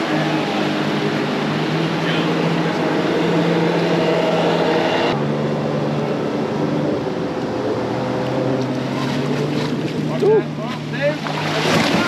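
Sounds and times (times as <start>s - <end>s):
boat engine drone: 0.0s - 12.0s
water noise: 0.0s - 12.0s
wind: 0.0s - 12.0s.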